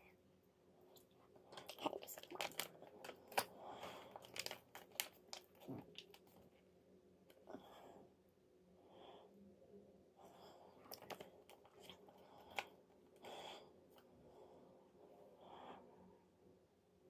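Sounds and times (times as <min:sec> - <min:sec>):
packaging crinkling: 0:01.6 - 0:06.3.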